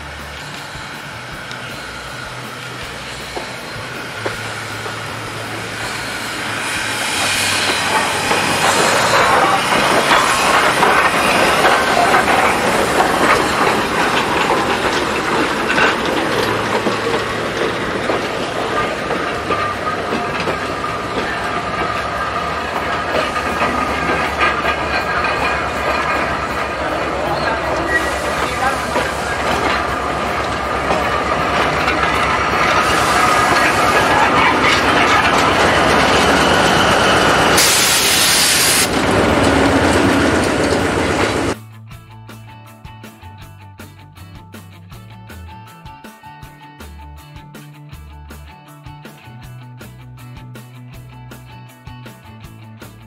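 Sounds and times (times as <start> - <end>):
steam locomotive passing: 0.0 - 41.6
wheels clattering over rail joints: 0.0 - 41.6.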